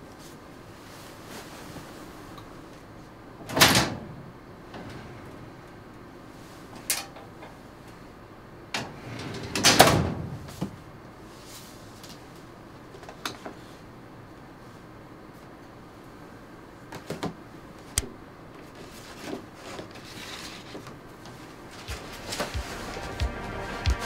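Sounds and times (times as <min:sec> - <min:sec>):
metal drawer clattering shut: 0:03.4 - 0:05.4, 0:08.8 - 0:10.8.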